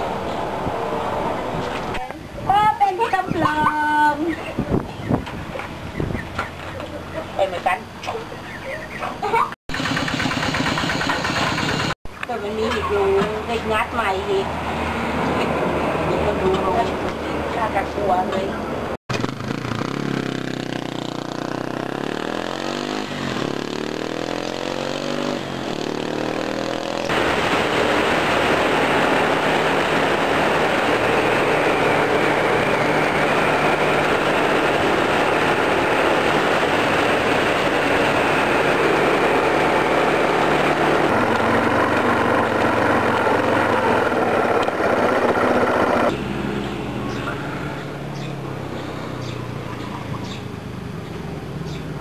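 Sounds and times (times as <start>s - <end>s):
wind rush: 4.5s - 6.4s
motorcycle engine running: 19.1s - 46.2s.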